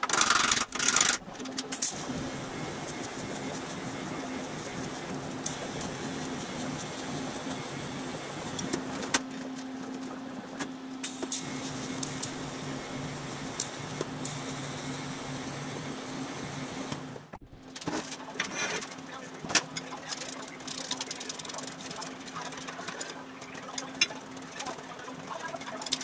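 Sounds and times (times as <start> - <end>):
welding arc buzzing hiss: 0.0 - 9.2, 11.0 - 17.6.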